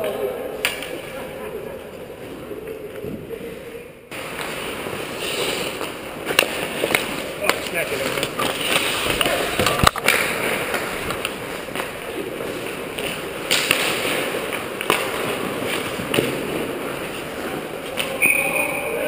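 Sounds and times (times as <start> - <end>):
hockey sticks and puck clacking: 0.0 - 1.2, 4.1 - 19.0
skate blades scraping ice: 4.2 - 18.2.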